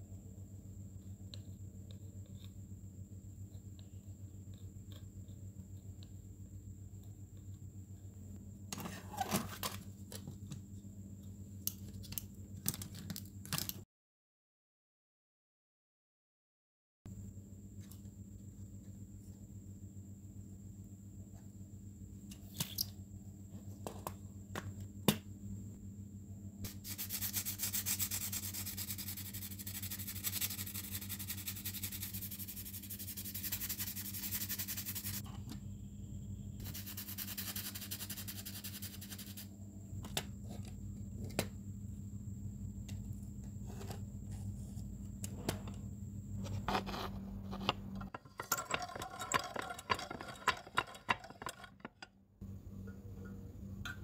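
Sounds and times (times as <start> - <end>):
hand sanding metal: 26.7 - 35.2, 36.6 - 39.4.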